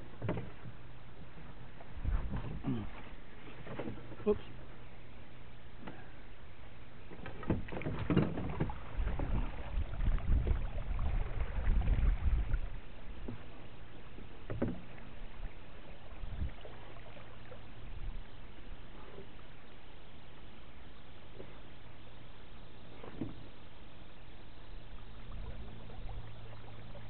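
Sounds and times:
water washing against hull: 0.0 - 27.0
knocks on boat: 0.2 - 0.8, 7.1 - 9.5, 14.4 - 15.0
low rumble: 8.7 - 12.9.

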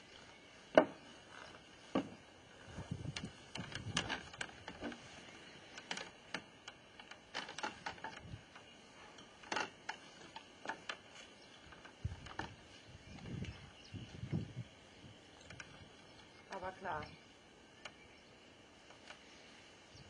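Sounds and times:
person shifting onto lounger: 0.7 - 13.5.

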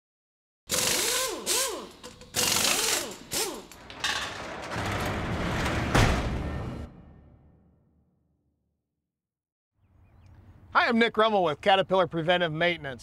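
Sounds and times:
metallic rattling and clanking: 2.0 - 6.7
heavy hit: 4.6 - 8.0.

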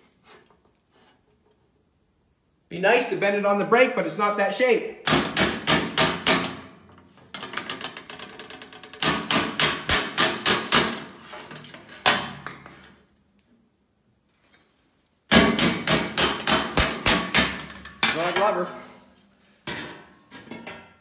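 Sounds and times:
hammer striking sheet metal: 5.0 - 6.8, 9.0 - 11.1, 15.3 - 18.6.

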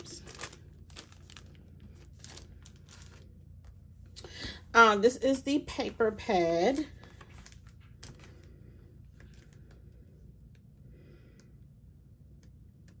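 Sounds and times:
paper and plastic rustling: 0.0 - 3.8, 5.9 - 9.8.

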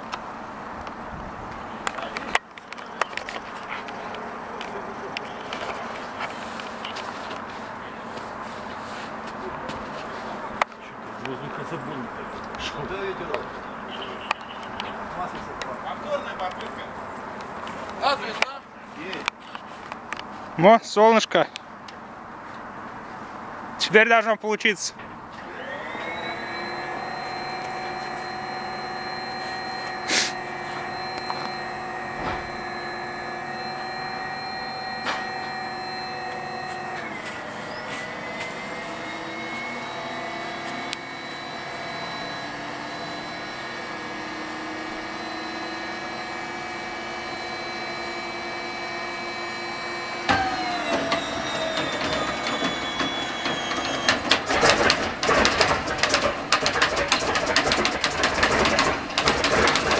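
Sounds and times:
engine starter whining: 25.3 - 59.9
engine knocking and rumbling: 50.4 - 59.9.

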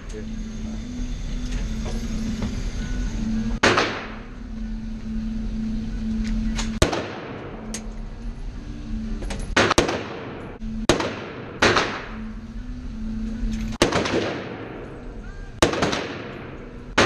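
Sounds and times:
fainter distant gunshots: 3.6 - 4.2, 6.8 - 7.6, 9.6 - 12.3, 13.8 - 15.0, 15.6 - 17.0
rifle shots echoing: 3.6 - 4.3, 6.8 - 7.6, 9.6 - 12.3, 13.8 - 17.0.

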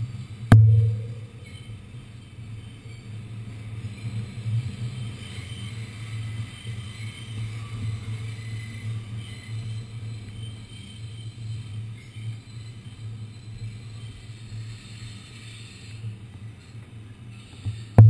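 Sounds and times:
subway car rumbling: 0.0 - 0.5, 1.1 - 18.0
faint high tones: 0.5 - 1.5.

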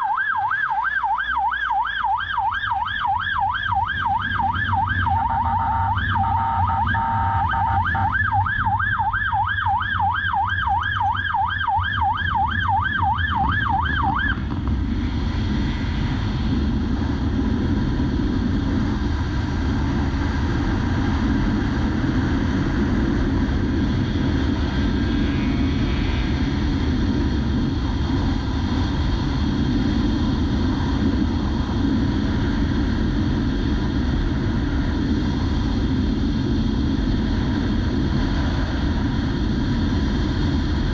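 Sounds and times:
police siren yelping: 0.0 - 14.4
wind rush: 2.4 - 40.9.

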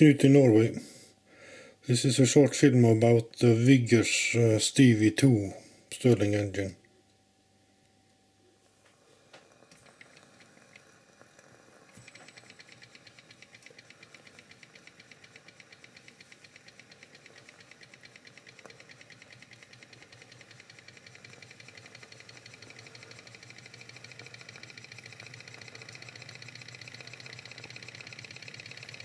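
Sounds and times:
scattered clicks: 9.4 - 29.0
stirling engine ticking: 12.0 - 29.0.

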